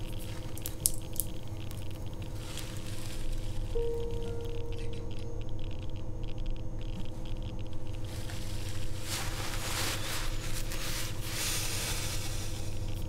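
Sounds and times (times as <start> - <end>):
low hum: 0.0 - 13.0
hiss: 8.1 - 13.0.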